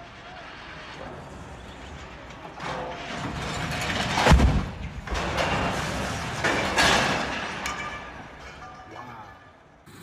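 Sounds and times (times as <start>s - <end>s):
crane crashing to the ground: 0.0s - 9.8s.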